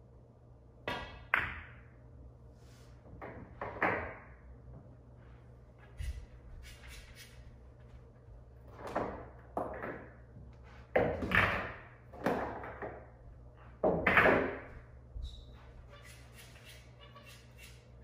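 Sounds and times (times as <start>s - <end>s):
pool balls clacking: 3.1s - 4.5s, 8.7s - 14.9s.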